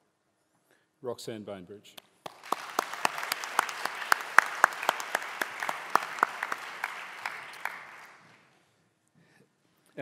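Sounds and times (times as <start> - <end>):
audience applauding: 2.2 - 8.5.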